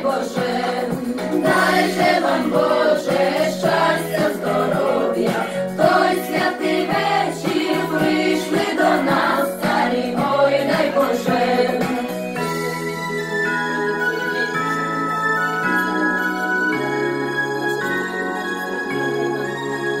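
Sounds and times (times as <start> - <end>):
group singing a carol: 0.0 - 12.5.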